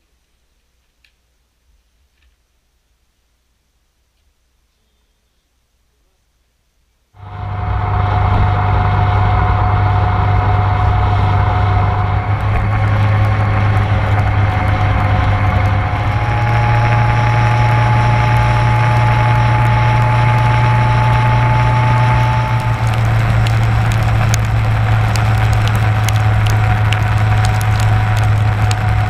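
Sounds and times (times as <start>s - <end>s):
motorcycle engine drone: 7.2s - 29.0s
road and wind noise: 7.2s - 29.0s.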